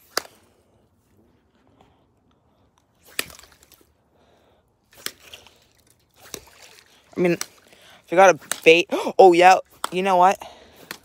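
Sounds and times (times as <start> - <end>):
sharp cracking snaps: 8.4 - 8.9, 10.8 - 11.0.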